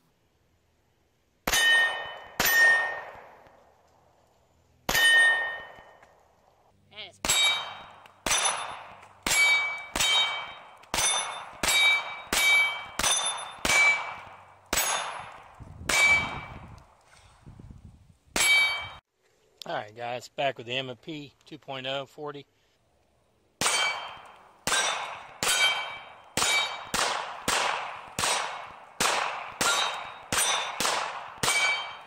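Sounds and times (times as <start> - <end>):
pistol shots: 1.4 - 3.5, 4.9 - 6.0, 7.2 - 16.6, 23.6 - 32.0
steel target ringing: 1.5 - 3.1, 4.9 - 6.0, 7.2 - 15.3, 15.9 - 16.6, 18.4 - 19.0, 23.6 - 27.0, 29.6 - 32.0.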